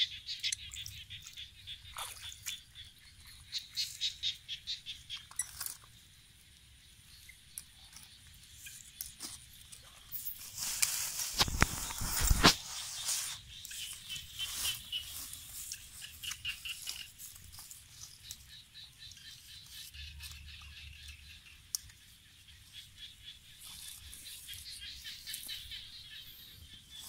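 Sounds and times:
small ticks: 4.9 - 27.0
plants rustling and crackling: 8.5 - 19.8.

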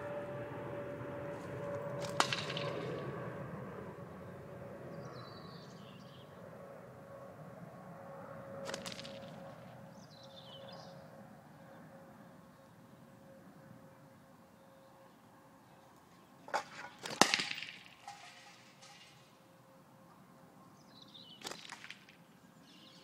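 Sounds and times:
catapult shot hitting tin cans: 2.0 - 3.0, 8.6 - 9.4, 16.6 - 19.3, 21.4 - 22.2.

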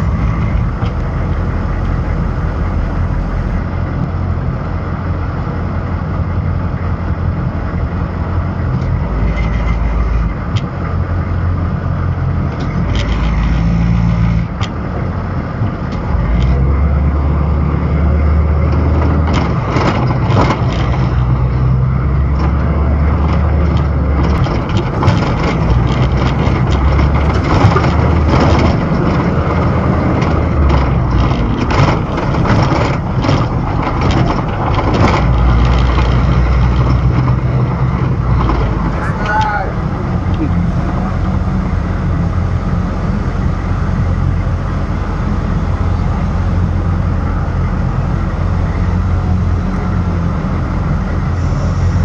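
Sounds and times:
diesel engine rumbling: 0.0 - 52.0
knocks and rattles: 18.6 - 42.3.

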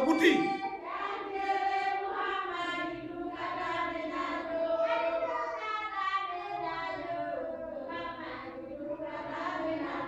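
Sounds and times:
high-pitched melodic chanting: 0.0 - 2.2.

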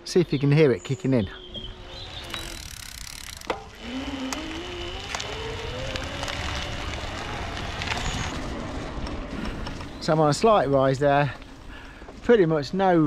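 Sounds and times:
bike rumbling on dirt track: 1.3 - 12.3
electric bike motor whine: 1.4 - 10.0.

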